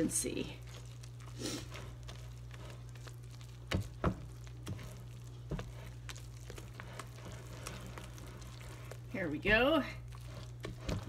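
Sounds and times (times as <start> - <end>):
batter stirred in glass bowl: 0.0 - 11.0
steady low hum: 0.0 - 11.0.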